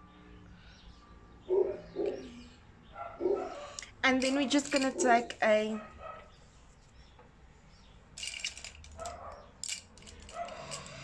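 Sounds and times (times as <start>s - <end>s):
faint dog barking: 1.4s - 3.8s, 5.0s - 6.4s.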